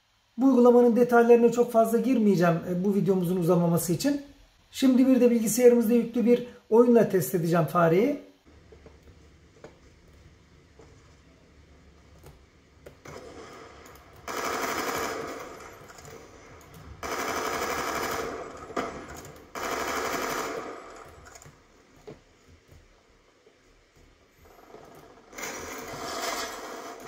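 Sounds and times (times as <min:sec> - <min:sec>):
video game automatic gunfire: 0:12.9 - 0:21.6, 0:24.5 - 0:27.0.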